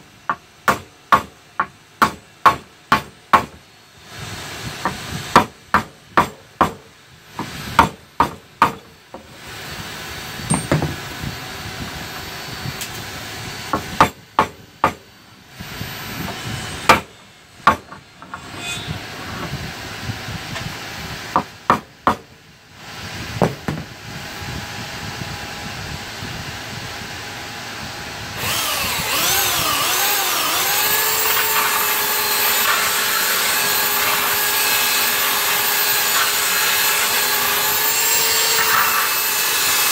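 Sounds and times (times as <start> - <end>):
hammer knocking on wood: 10.5 - 11.0
belt sander whining: 27.8 - 39.9.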